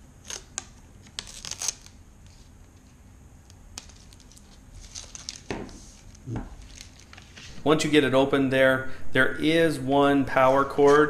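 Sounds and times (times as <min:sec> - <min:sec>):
packaging rustling and clicking: 0:03.8 - 0:07.5
plastic wrap crinkling: 0:03.8 - 0:07.5.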